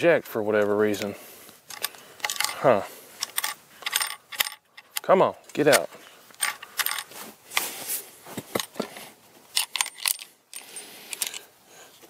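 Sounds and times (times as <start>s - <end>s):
rifle bolt clicks and rattles: 0.6s - 7.7s, 8.4s - 11.5s
brass cases clinking: 1.7s - 7.7s, 8.4s - 11.5s.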